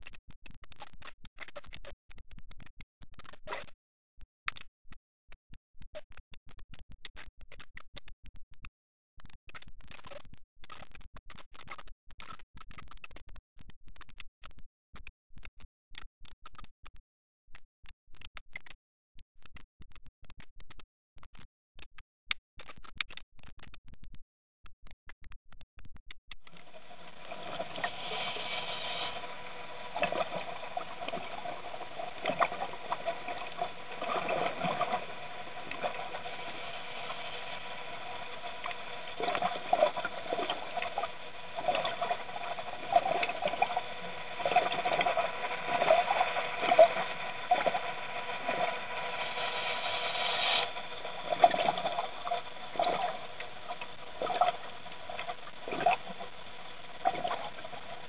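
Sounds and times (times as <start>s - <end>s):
underwater patter and clicking: 0.0s - 58.0s
faint electronic hum: 26.5s - 58.0s.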